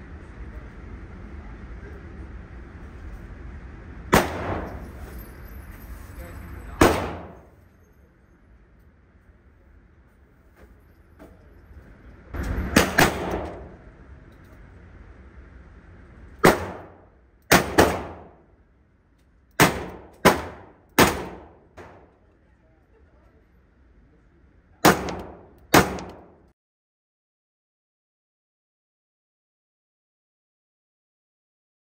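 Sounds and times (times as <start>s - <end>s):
handgun shots echoing indoors: 4.1s - 5.0s, 6.8s - 7.5s, 12.7s - 13.8s, 16.4s - 18.4s, 19.6s - 22.2s, 24.8s - 26.4s.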